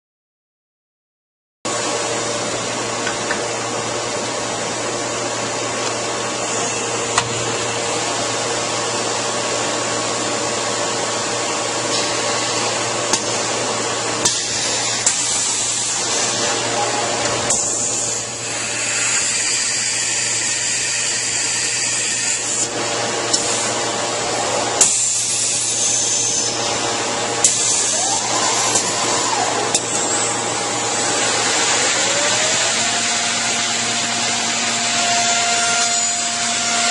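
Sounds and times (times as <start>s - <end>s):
machine hum and whine: 1.7s - 36.9s
motor speeding up: 30.8s - 34.8s.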